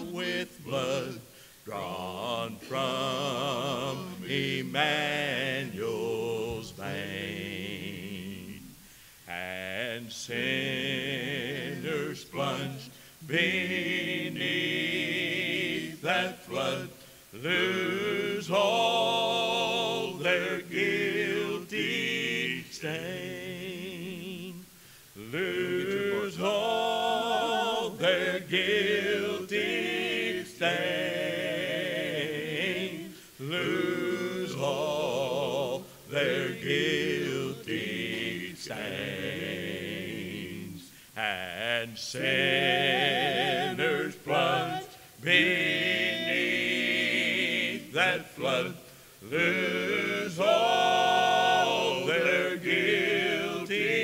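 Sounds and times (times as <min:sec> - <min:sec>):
vocal quartet singing a hymn: 0:00.0 - 0:54.0
singers' breaths: 0:01.2 - 0:01.7, 0:08.8 - 0:09.3, 0:48.8 - 0:49.3.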